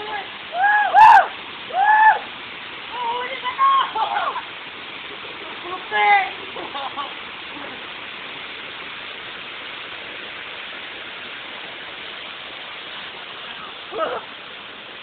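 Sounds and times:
waterfall rushing: 0.0 - 15.0
person calling out: 13.9 - 14.3.

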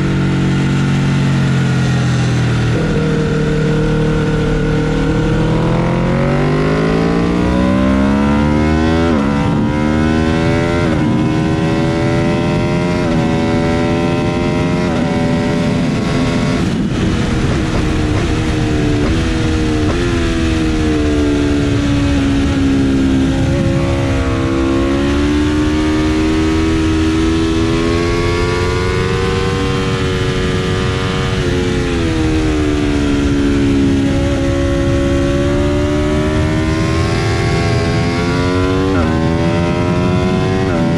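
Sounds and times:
motorcycle engine revving through gears: 0.0 - 40.9
wind rushing: 14.4 - 29.0.

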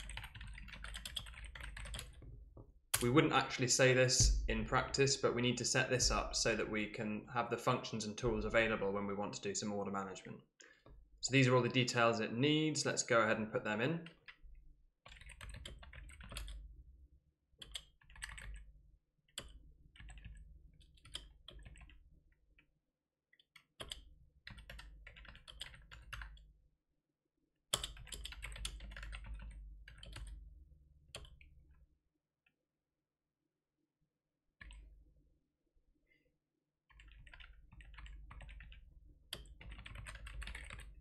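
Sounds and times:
typing on computer keyboard: 0.0 - 2.3, 15.1 - 16.6, 17.6 - 18.7, 19.4 - 22.0, 23.6 - 26.4, 27.8 - 30.4, 31.2 - 31.5, 36.9 - 41.0.

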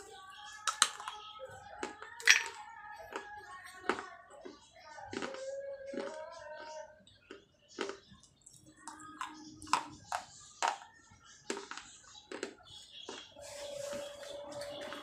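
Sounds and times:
faint singing and music: 0.0 - 15.0
terracotta crunching between teeth: 0.6 - 6.4, 7.0 - 10.9, 11.5 - 13.4.

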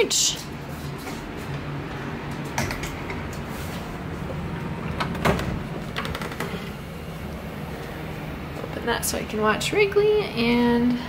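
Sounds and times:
steady low hum: 0.0 - 11.0
door clicks and knocks: 4.7 - 6.8.

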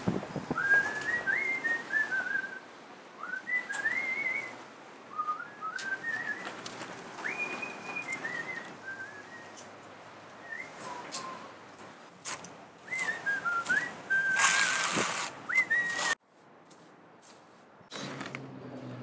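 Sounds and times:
person whistling a tune: 0.5 - 2.6, 3.2 - 6.5, 7.2 - 9.7, 10.4 - 11.5, 12.8 - 16.2.

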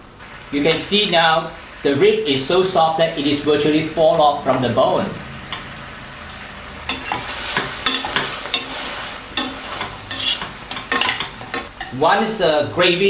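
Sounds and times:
sauce sizzling: 0.0 - 13.0
tongs clinking against pan: 6.9 - 8.8, 9.4 - 12.0.

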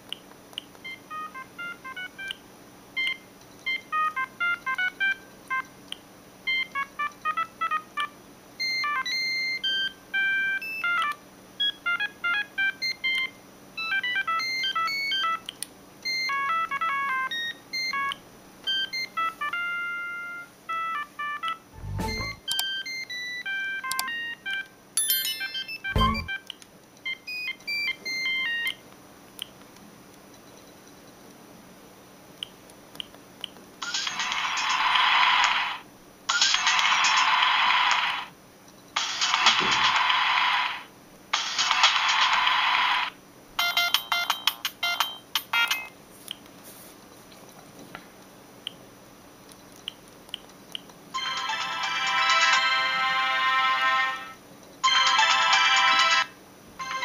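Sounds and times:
phone ringtone beeps: 0.9 - 2.4, 3.0 - 5.7, 6.5 - 15.4, 16.0 - 26.4, 27.2 - 28.7.

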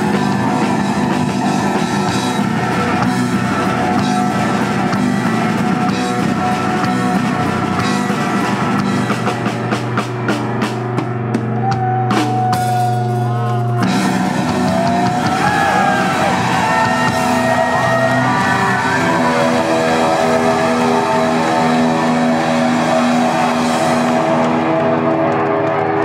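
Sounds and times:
guitar feedback tones: 0.0 - 9.6, 11.2 - 26.0
electric guitars ringing: 10.4 - 26.0.

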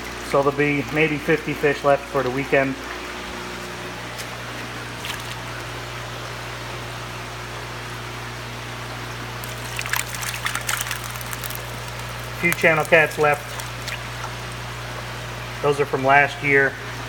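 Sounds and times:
low hum of tank aeration: 0.0 - 17.0
net splashing in water: 5.0 - 5.5, 9.4 - 14.8
bubbling water: 9.1 - 15.2.

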